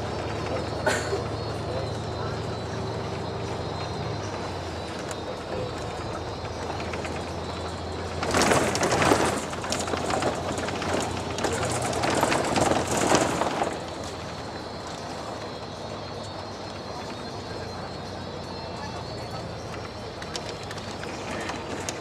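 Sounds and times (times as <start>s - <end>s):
car driving hum from inside: 0.0s - 22.0s
rushing crackling noise: 5.8s - 15.5s.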